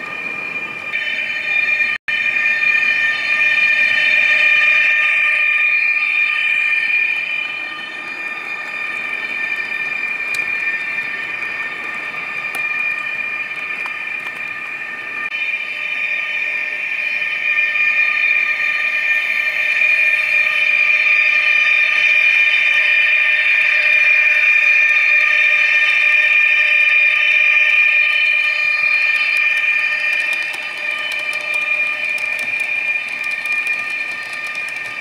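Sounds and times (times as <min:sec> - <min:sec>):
model wheels rolling on track: 0:28.4 - 0:35.0.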